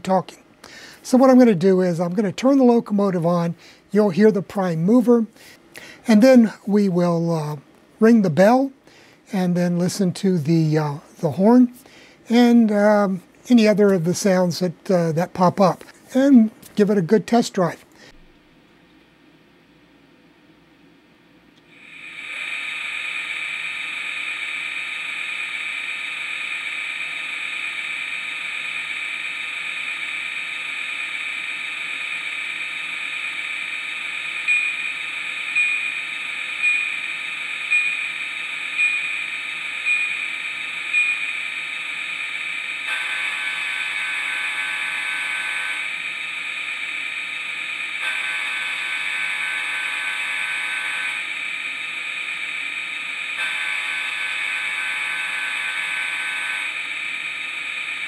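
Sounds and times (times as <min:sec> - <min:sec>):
locomotive bell ringing: 0:34.4 - 0:46.0, 0:48.0 - 0:51.3, 0:53.4 - 0:56.8.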